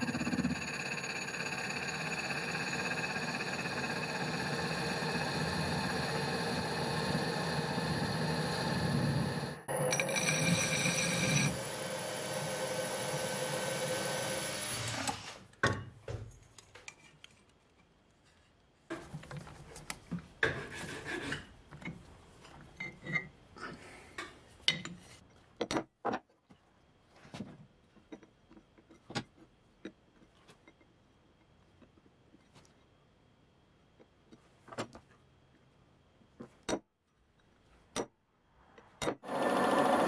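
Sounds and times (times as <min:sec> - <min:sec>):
metal lathe whining: 0:00.0 - 0:15.3, 0:39.3 - 0:40.0.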